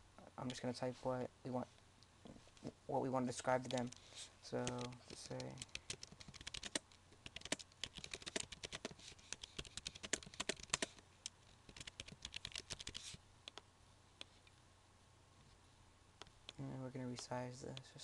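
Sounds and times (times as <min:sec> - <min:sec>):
typing on a computer keyboard: 0:04.6 - 0:11.0, 0:11.7 - 0:13.6.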